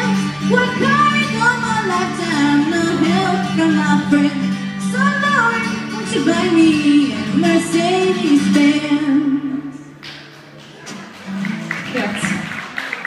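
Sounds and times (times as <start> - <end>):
woman singing: 0.0 - 9.8
acoustic guitar chords: 0.0 - 12.6.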